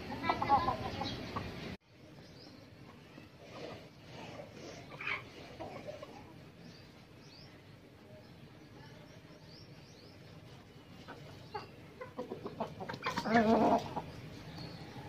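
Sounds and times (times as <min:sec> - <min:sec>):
chickens clucking: 0:00.0 - 0:07.2, 0:09.6 - 0:15.0
small birds chirping: 0:00.2 - 0:15.0
chicken squawk: 0:12.1 - 0:14.0.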